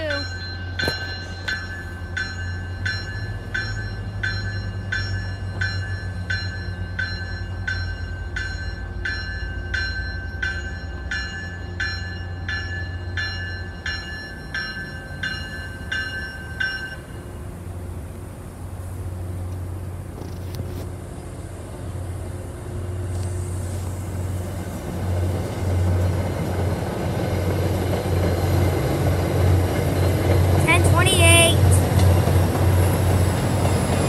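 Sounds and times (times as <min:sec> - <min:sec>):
train bell ringing: 0:00.0 - 0:17.8, 0:25.6 - 0:34.0
train rolling rumble: 0:00.0 - 0:34.0.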